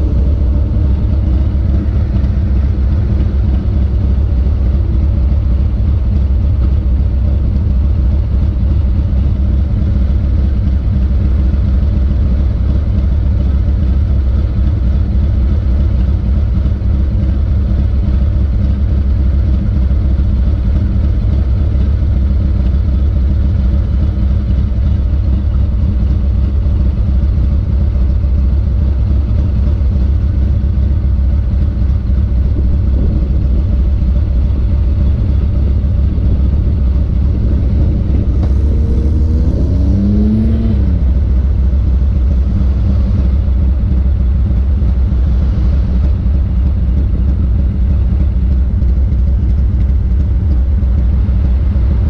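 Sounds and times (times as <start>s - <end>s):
wavering whine: 0.0s - 7.4s, 31.5s - 50.2s
motorcycle engine idling: 0.0s - 52.0s.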